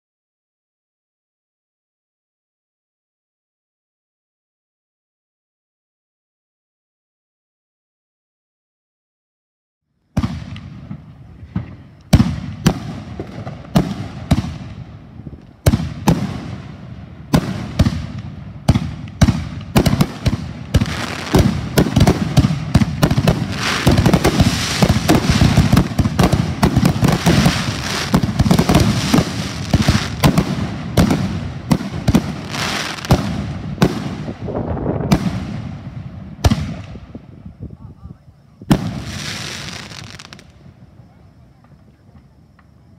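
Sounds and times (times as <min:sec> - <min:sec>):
firework shells bursting: 0:17.3 - 0:34.4.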